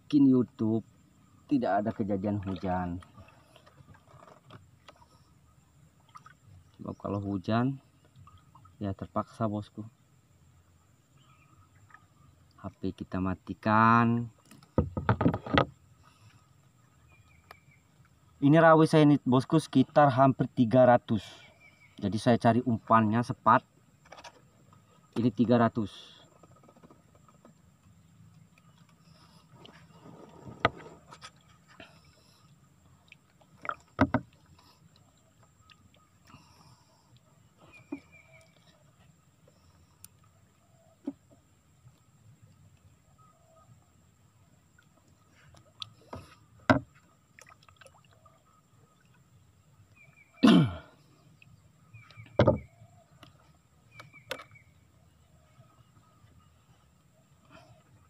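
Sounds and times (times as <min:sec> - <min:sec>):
sharp knocks on boat: 0:14.7 - 0:15.8, 0:34.0 - 0:34.3, 0:46.7 - 0:46.9, 0:52.3 - 0:52.7.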